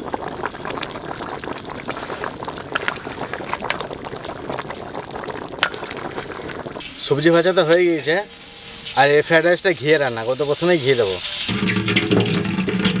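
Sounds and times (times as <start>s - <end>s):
meat sizzling in oil: 0.0s - 13.0s
oil crackling and popping: 0.0s - 13.0s.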